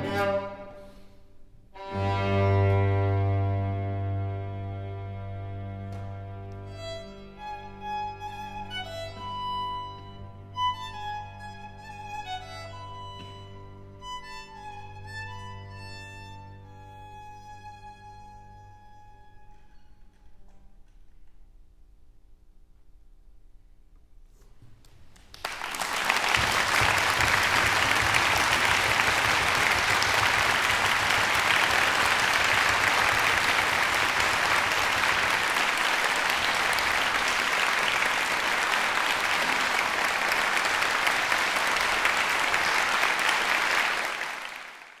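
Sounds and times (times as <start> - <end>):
audience applauding: 25.2 - 45.0.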